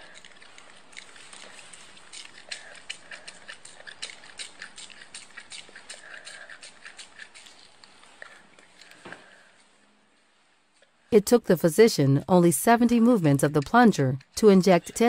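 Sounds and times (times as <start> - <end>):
syringe plunger clicks and squelches: 0.0 - 9.0, 12.7 - 15.0.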